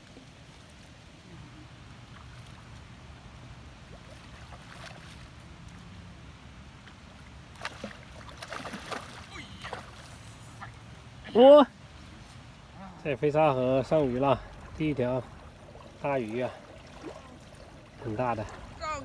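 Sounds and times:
sharp water splashes: 0:02.0 - 0:06.1, 0:06.8 - 0:10.9, 0:13.4 - 0:19.0
fish thrashing in water: 0:07.6 - 0:10.0.

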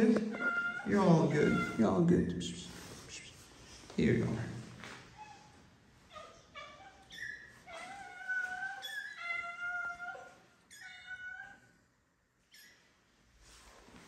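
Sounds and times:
cats meowing: 0:00.0 - 0:01.9, 0:05.2 - 0:11.8.

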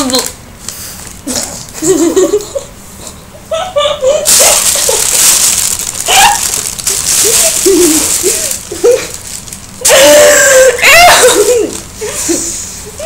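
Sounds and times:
muffled giggles: 0:03.4 - 0:05.1
plastic bag rustling: 0:04.2 - 0:10.3.

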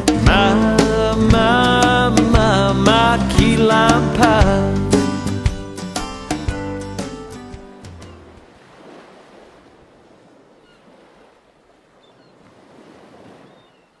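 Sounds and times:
song music: 0:00.0 - 0:08.4
ocean surf washing: 0:04.9 - 0:14.0.

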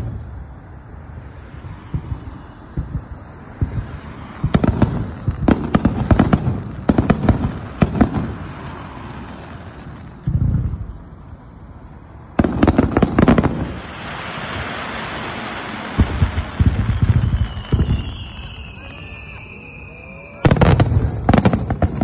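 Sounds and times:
firework hiss: 0:00.0 - 0:22.0
fireworks cracks and bangs: 0:00.0 - 0:22.0
low firework boom: 0:01.7 - 0:08.3, 0:10.2 - 0:11.0, 0:15.9 - 0:18.8, 0:20.4 - 0:22.0.

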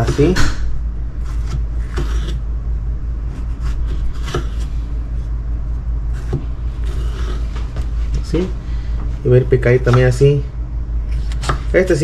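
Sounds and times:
knife slicing tomato: 0:01.2 - 0:02.4, 0:03.3 - 0:04.8.

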